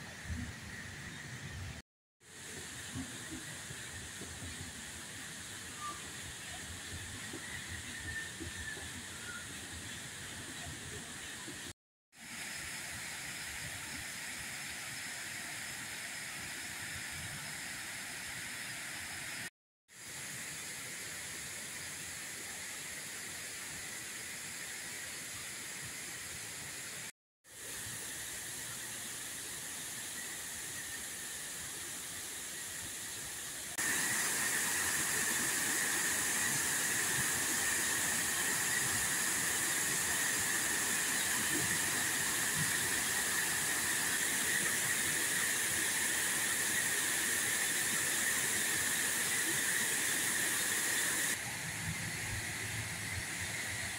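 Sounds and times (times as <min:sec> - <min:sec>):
water rushing over dam: 0:33.4 - 0:53.9.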